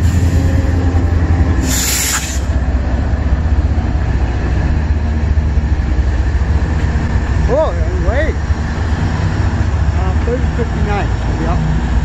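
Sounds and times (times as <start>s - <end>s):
diesel locomotive engine rumble: 0.0s - 12.0s
train wheels on rail: 0.0s - 12.0s
brief hiss: 1.6s - 2.5s.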